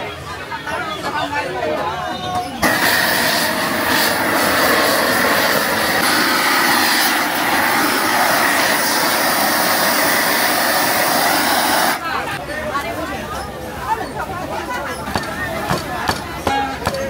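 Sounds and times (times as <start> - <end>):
loud rushing machine noise: 2.6 - 12.0.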